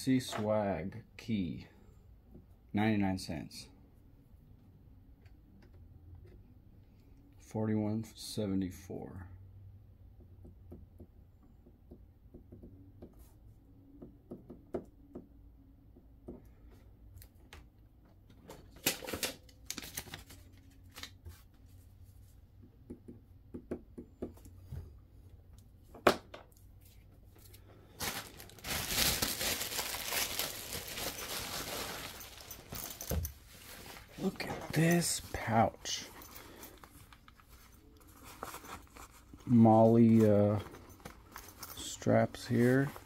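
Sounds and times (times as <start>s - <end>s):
plastic bag rustling: 27.4s - 43.0s
plastic crinkling: 27.5s - 34.4s.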